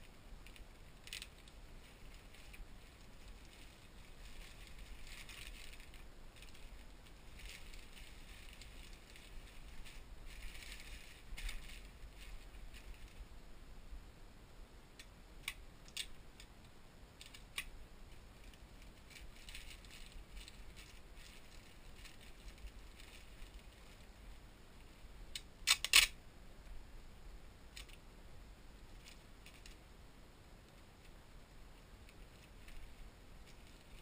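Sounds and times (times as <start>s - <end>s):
loud plastic crackle: 0.0s - 13.2s, 17.2s - 24.2s
plastic mailer rustling: 0.4s - 13.3s, 18.1s - 24.2s.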